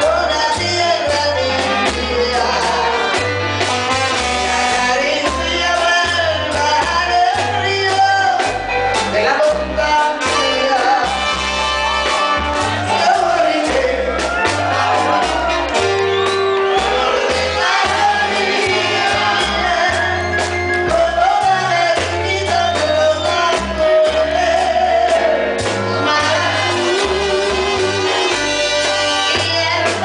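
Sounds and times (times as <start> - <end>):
woman singing lead: 0.0 - 3.4, 4.7 - 30.0
bass line: 0.0 - 30.0
steady percussion: 10.3 - 30.0.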